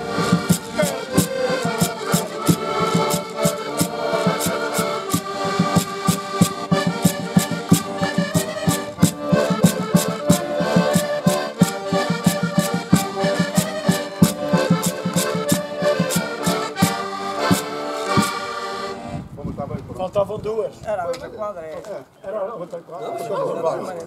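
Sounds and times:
clicking percussion beat: 0.0 - 19.0
button accordions playing: 0.0 - 19.2.

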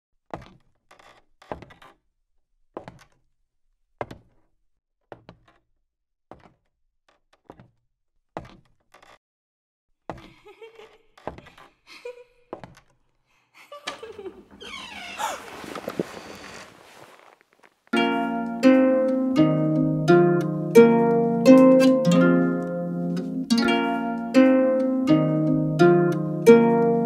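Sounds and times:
heavy footsteps on stairs: 11.2 - 11.6
handling noise: 14.4 - 18.0.

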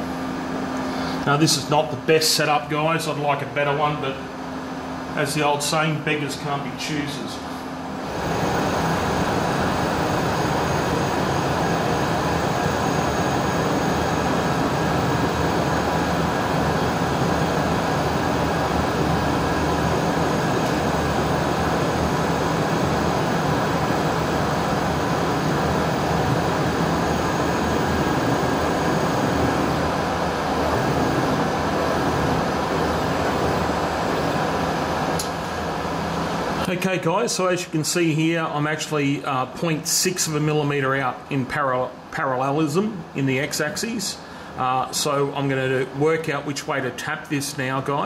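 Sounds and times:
milling machine humming: 0.0 - 36.8.

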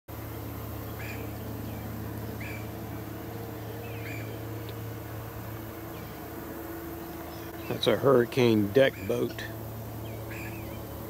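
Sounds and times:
distant outboard motor droning: 0.1 - 11.0
bird chirping: 0.7 - 4.9, 5.8 - 6.3, 6.9 - 8.0, 8.8 - 11.0.

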